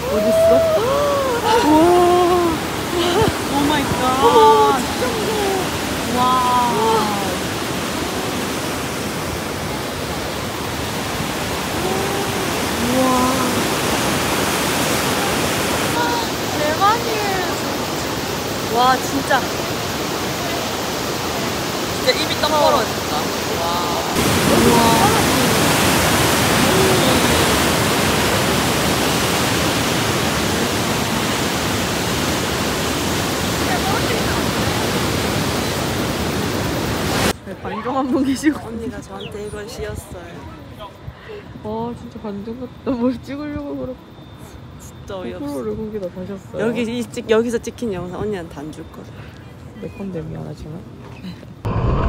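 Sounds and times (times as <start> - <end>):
roar of rushing whitewater: 0.0 - 37.4, 51.6 - 52.0.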